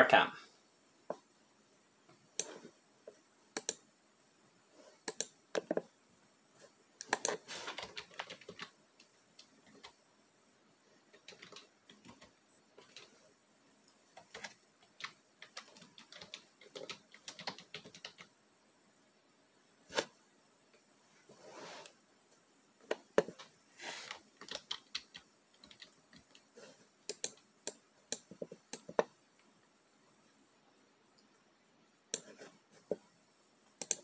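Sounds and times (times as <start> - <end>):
computer keyboard typing: 3.6 - 3.8, 5.1 - 5.8, 7.0 - 10.0, 11.1 - 13.2, 14.1 - 18.3, 24.4 - 29.1
soft noises: 19.8 - 24.4.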